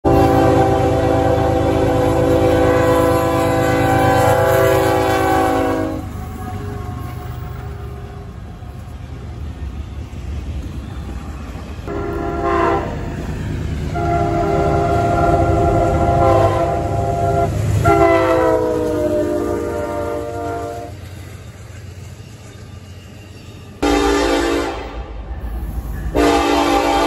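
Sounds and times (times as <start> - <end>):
locomotive air horn: 0.0 - 8.2, 11.9 - 13.1, 13.9 - 21.0, 23.8 - 25.1, 26.1 - 27.0
moving train rumble: 0.0 - 27.0.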